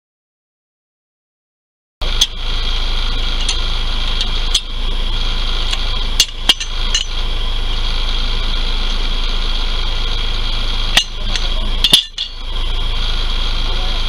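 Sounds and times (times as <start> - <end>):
high-pitched drone: 2.0 - 14.0
steady low hum: 2.0 - 14.0
jack ratchet metal clacks: 3.4 - 4.7, 5.6 - 7.2, 10.9 - 12.5.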